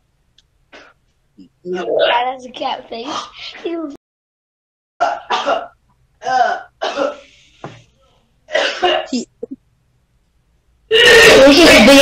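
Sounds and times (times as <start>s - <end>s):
person coughing: 5.0s - 7.3s, 8.5s - 9.3s.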